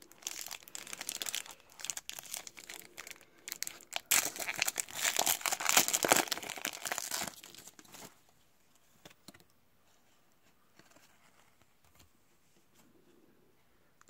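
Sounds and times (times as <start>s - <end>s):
foil wrapper crinkling: 0.0s - 8.1s.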